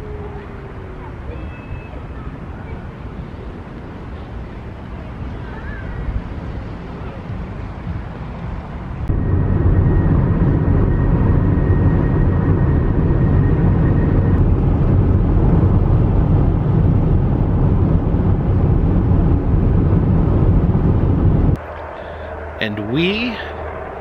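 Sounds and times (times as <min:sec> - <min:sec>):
vehicle driving at speed: 0:05.9 - 0:24.0.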